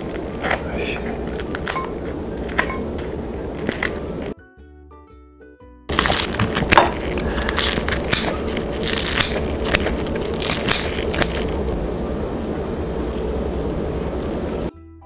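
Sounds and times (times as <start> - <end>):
scissors cutting crispy food: 0.0 - 2.7, 3.6 - 4.1, 5.9 - 11.7.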